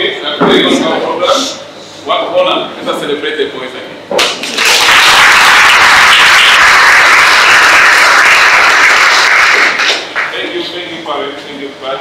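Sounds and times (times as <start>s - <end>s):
crowd applauding: 4.2s - 10.4s.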